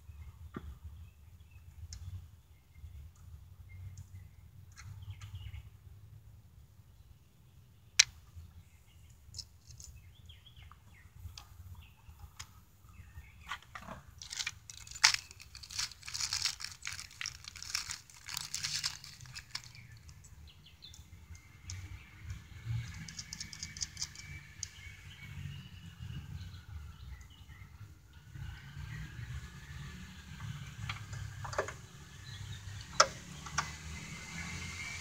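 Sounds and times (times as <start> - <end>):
crinkling and rustling: 13.4 - 20.4, 22.8 - 24.3.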